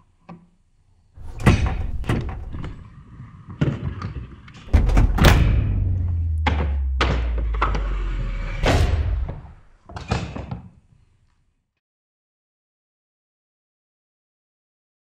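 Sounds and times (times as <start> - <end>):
plastic tool box lid banging shut: 1.2 - 2.8, 4.7 - 5.8
low steady drone: 4.7 - 9.7.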